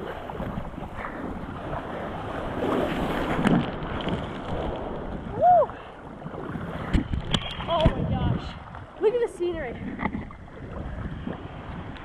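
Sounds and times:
sea water sloshing and splashing: 0.0s - 12.0s
wind buffeting microphone: 0.0s - 12.0s.

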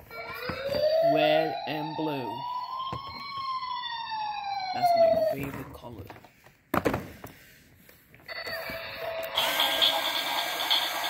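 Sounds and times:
toy car electronic sound effect: 8.3s - 11.0s.

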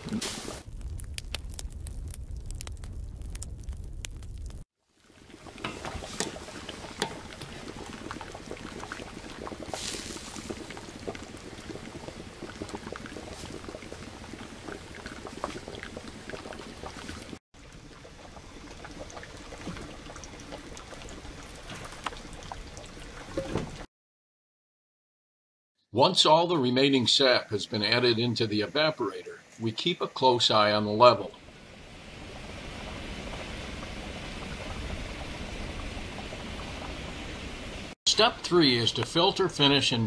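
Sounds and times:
sap boiling and bubbling: 0.0s - 23.9s, 27.7s - 40.0s.

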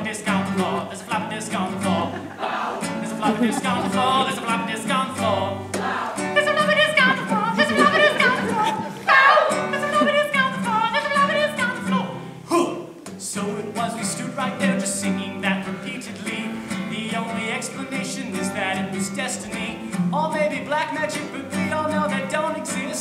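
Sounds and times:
classical guitar strumming: 0.0s - 23.0s
person singing: 0.0s - 23.0s.

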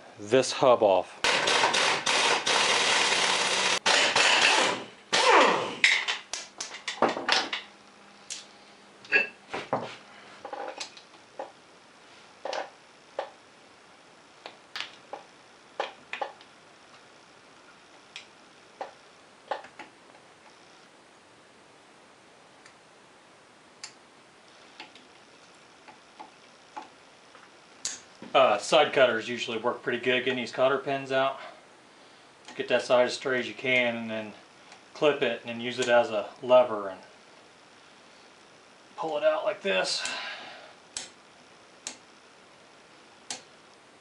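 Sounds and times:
loud harsh rattling: 1.3s - 6.1s.

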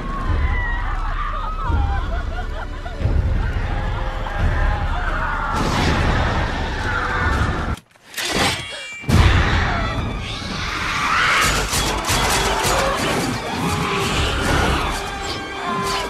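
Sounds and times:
orchestral horror score: 0.0s - 16.0s
women shrieking: 0.2s - 2.2s.

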